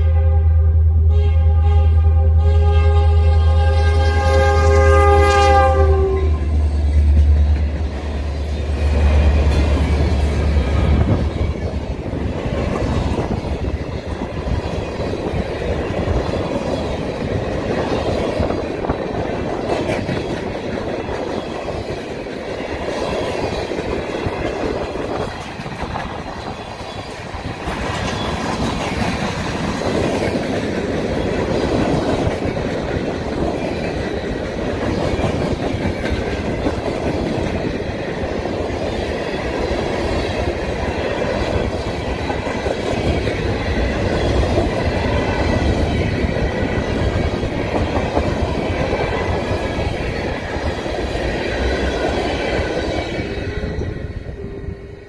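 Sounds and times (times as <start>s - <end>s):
locomotive horn: 0.0s - 7.2s
train wheels clickety-clack on rails: 4.1s - 55.0s.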